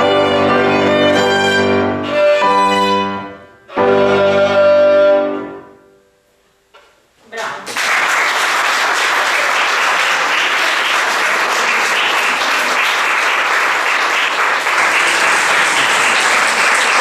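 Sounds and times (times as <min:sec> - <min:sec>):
audience applauding: 0:07.7 - 0:17.0.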